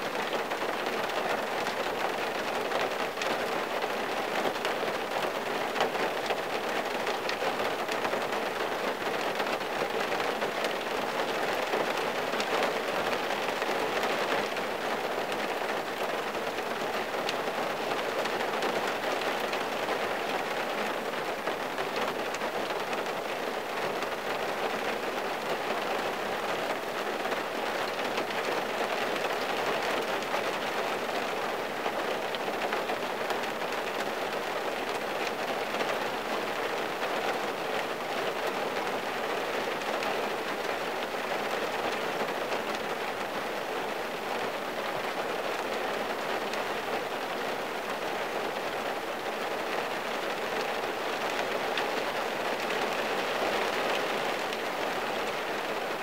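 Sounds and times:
rain falling on a car: 0.0s - 56.0s.

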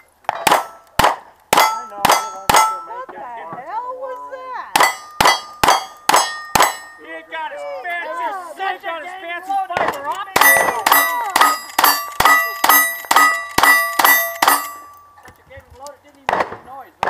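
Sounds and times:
steel plate ringing clang: 1.5s - 3.1s, 4.7s - 7.3s, 10.4s - 15.2s.

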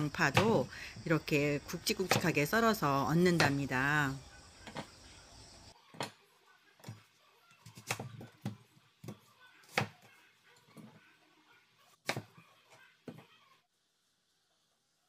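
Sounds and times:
knife chopping on plastic board: 2.0s - 2.4s, 7.6s - 10.1s, 12.0s - 12.4s.

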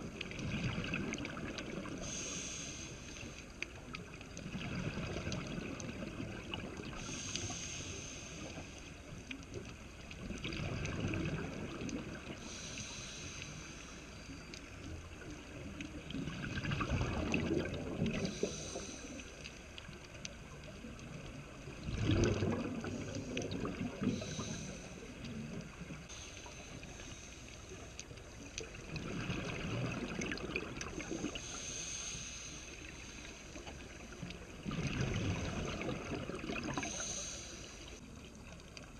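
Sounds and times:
exhaled bubbles gurgling: 0.0s - 13.3s, 14.3s - 27.1s, 27.8s - 38.2s
regulator inhalation hiss: 2.0s - 3.6s, 6.9s - 9.1s, 12.4s - 14.4s, 18.3s - 19.7s, 24.1s - 25.2s, 26.1s - 27.9s, 31.0s - 33.8s, 36.7s - 38.0s.

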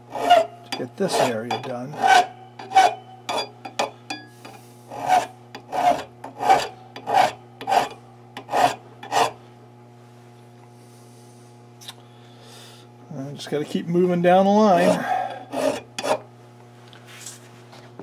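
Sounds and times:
metal file rasping on metal: 0.0s - 9.4s, 14.7s - 16.3s.

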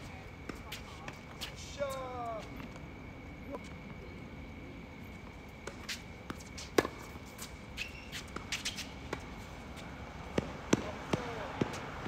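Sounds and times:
racket hitting tennis ball: 5.7s - 7.5s, 10.3s - 11.8s.

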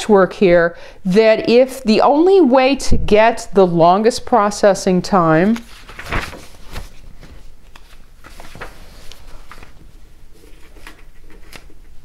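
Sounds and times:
paper rustling: 5.3s - 12.0s.

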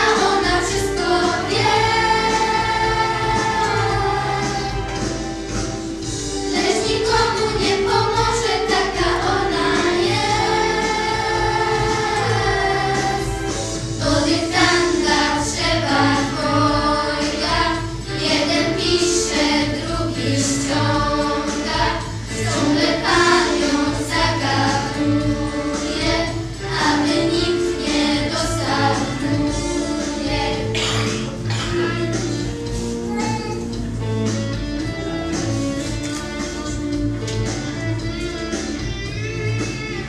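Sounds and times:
girls singing together: 0.0s - 5.1s, 6.5s - 31.8s
instrumental accompaniment: 0.0s - 40.0s.

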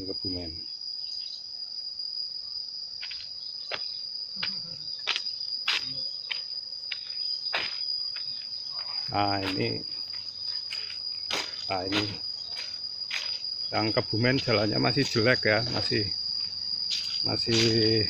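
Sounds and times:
insects shrilling: 0.0s - 18.0s
footsteps on dry leaves: 6.9s - 18.0s.

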